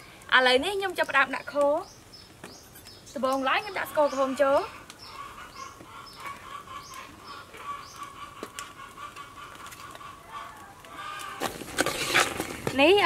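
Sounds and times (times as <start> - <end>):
small birds chirping: 0.0 - 11.4
chickens clucking: 3.3 - 12.8.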